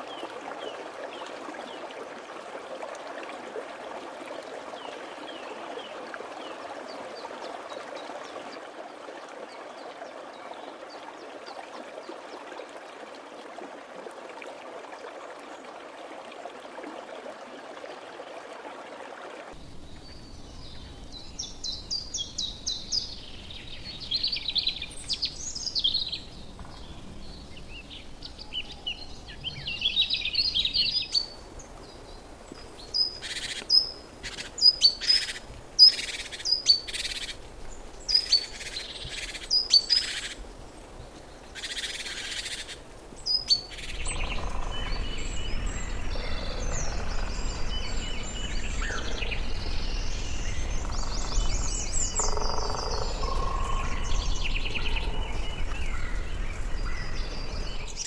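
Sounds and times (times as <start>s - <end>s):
steady background hiss: 19.6s - 58.0s
birds twittering: 41.6s - 58.0s.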